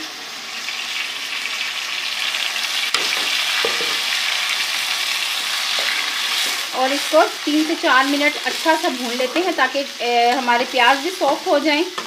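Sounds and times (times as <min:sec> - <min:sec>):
masala sizzling in a pan: 0:00.0 - 0:12.0
spoon stirring and scraping pan: 0:02.9 - 0:12.0.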